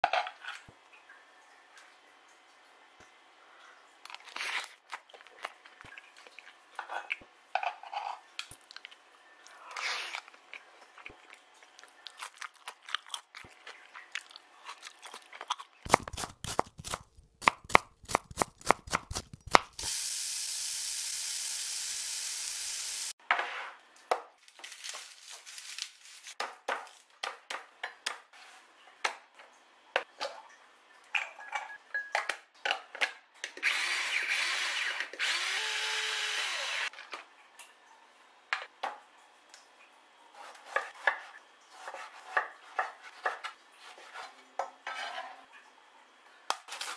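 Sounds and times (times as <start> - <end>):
crunching of food being eaten: 10.0 - 16.9.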